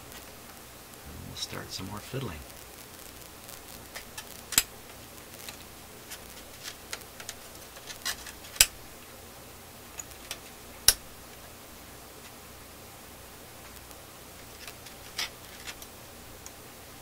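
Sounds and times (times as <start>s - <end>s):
sharp metal snaps: 8.5s - 8.8s, 10.0s - 11.0s.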